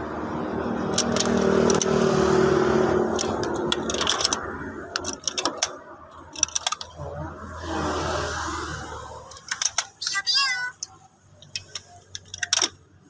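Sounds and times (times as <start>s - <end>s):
ratchet wrench clicking: 0.9s - 2.0s, 3.1s - 7.0s, 9.3s - 10.0s, 11.4s - 12.8s.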